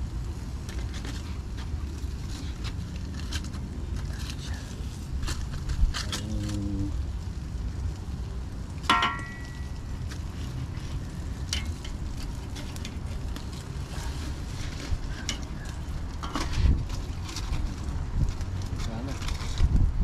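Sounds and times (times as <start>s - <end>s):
fish sizzling on a grill: 0.0s - 19.6s
metallic clink: 8.9s - 9.8s.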